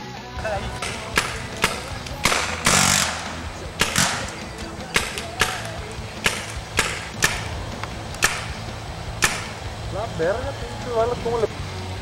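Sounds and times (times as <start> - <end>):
paintball markers popping: 0.8 - 8.5.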